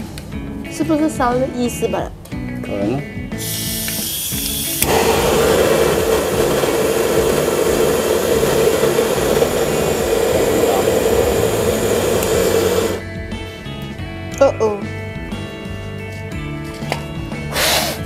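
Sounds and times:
blowtorch hissing: 3.4s - 13.0s, 17.5s - 18.0s.

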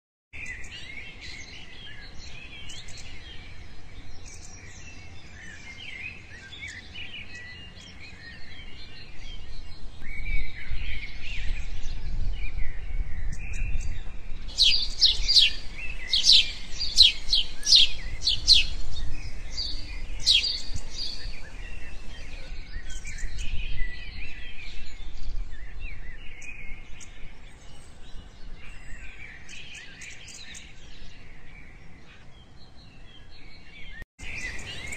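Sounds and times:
birds chirping and singing: 0.4s - 34.9s
sharp downward-sweeping bird calls: 14.5s - 23.1s.

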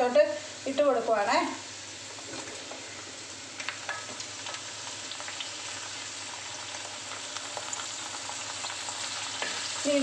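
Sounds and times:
shallots sizzling in oil: 0.0s - 10.0s.

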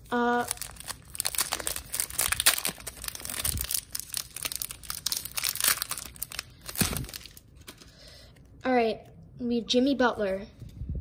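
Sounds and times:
foil wrapper crinkling: 0.0s - 7.9s.

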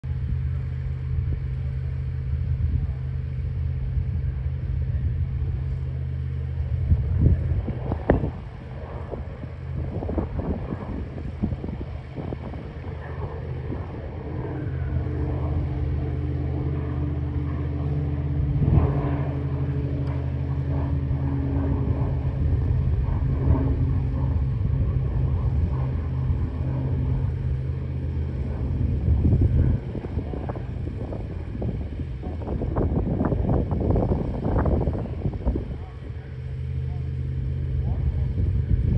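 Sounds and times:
rough rumble: 0.0s - 38.9s
turboprop aircraft droning: 0.0s - 38.9s.

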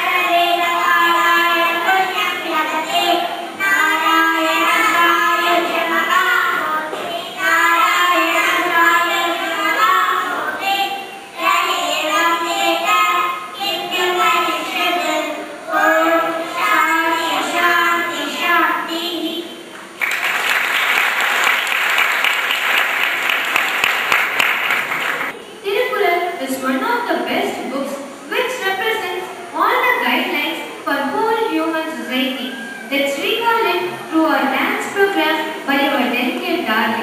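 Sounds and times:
girls singing in unison: 0.0s - 18.4s.

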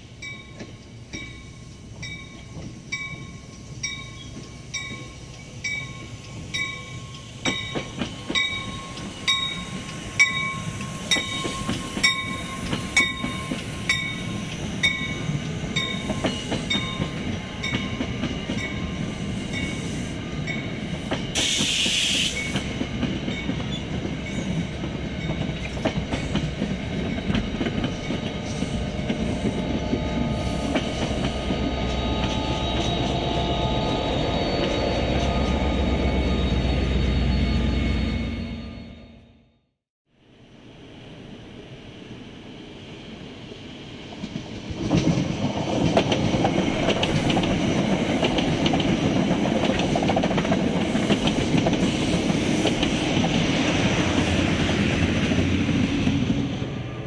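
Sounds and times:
train wheels clicking on rails: 0.5s - 33.4s, 44.0s - 56.7s
air hiss: 21.4s - 22.7s.

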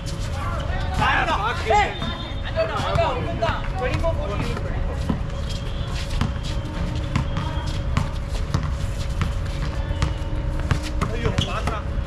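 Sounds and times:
players' footsteps: 0.0s - 12.0s
basketball bouncing on hard court: 6.2s - 11.9s.

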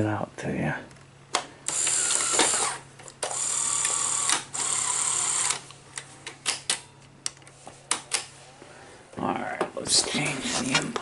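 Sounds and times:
tape mechanism whirring: 1.6s - 5.7s.

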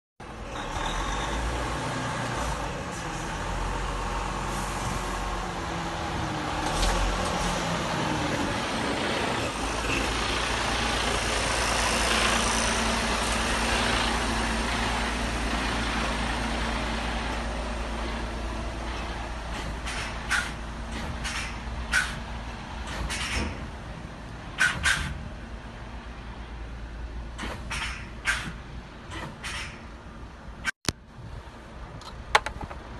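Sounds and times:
truck diesel engine running: 0.2s - 24.6s.

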